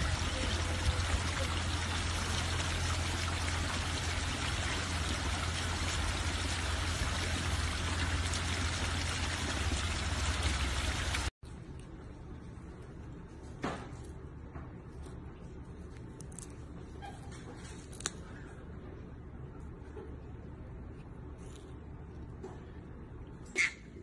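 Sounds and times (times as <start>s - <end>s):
water rushing into pond: 0.0s - 11.3s
steady low hum: 0.0s - 17.0s.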